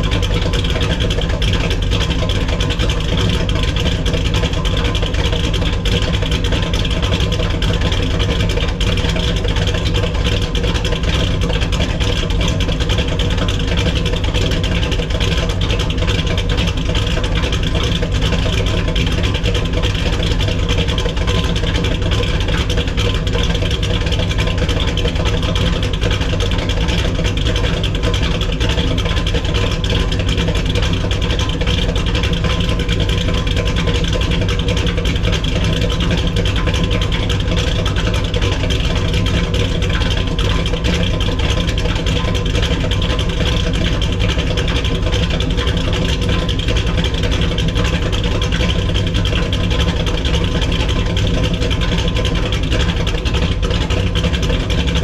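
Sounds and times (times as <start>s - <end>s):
car engine idling: 0.0s - 55.0s.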